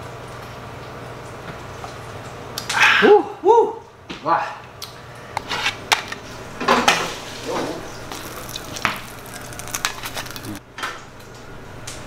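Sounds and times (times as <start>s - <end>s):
fat sizzling in a pan: 8.0s - 10.6s.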